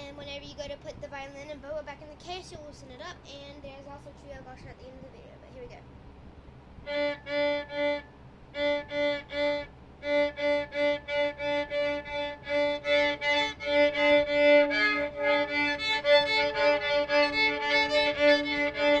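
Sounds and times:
violin bowed in short strokes: 8.6 - 19.0.

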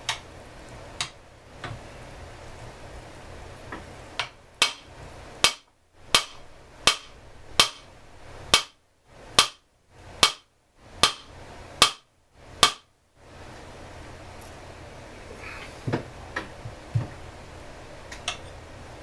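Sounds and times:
hammer tapping on metal: 4.2 - 7.9, 8.5 - 8.8, 10.2 - 12.9.

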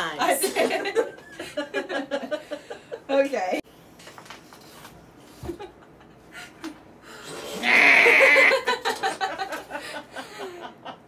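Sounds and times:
women laughing: 0.4 - 3.1, 7.6 - 11.0.

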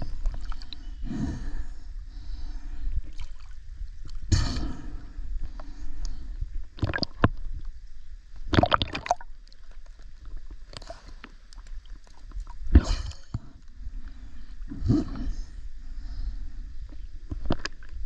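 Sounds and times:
river water splashing and gurgling: 8.5 - 9.8.

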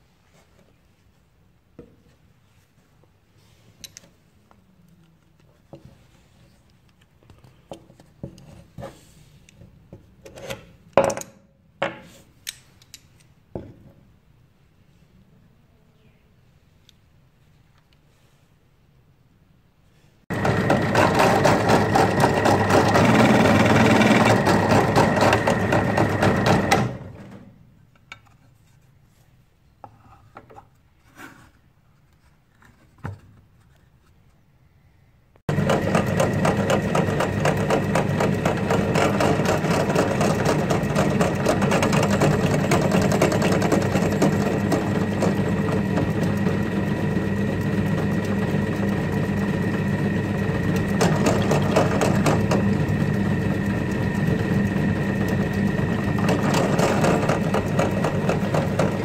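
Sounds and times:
drill press motor whining: 20.3 - 27.4, 35.5 - 59.0.

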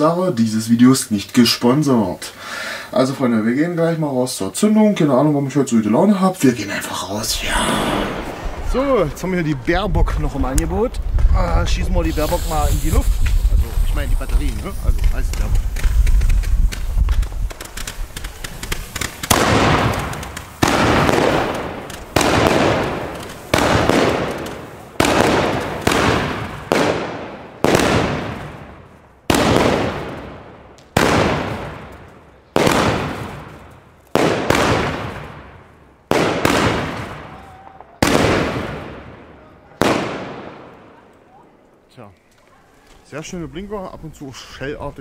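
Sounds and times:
firework bangs: 6.7 - 41.5.

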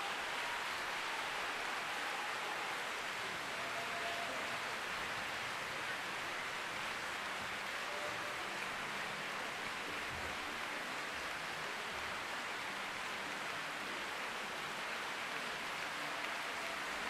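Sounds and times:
audience applause: 0.0 - 17.0.

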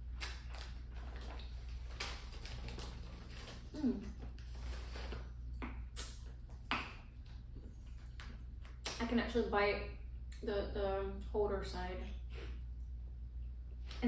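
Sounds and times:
steady low hum: 0.0 - 14.0
person humming briefly: 3.7 - 4.2.

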